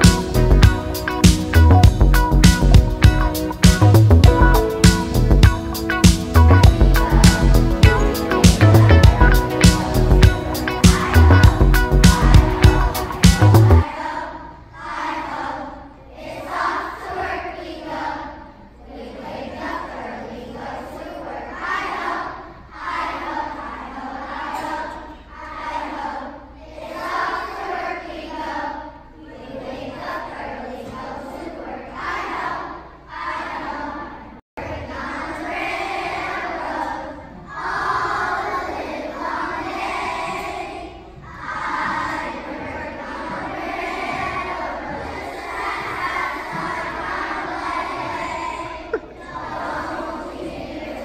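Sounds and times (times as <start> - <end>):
children singing in unison: 0.0 - 0.4, 6.3 - 51.0
children shouting and cheering: 6.4 - 14.0.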